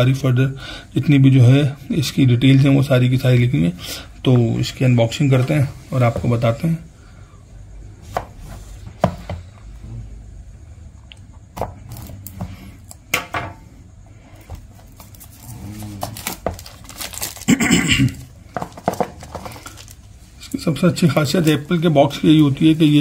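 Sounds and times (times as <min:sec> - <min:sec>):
plastic wrap rustling: 0:14.6 - 0:23.0
knife scraping plastic wrap: 0:14.9 - 0:20.0.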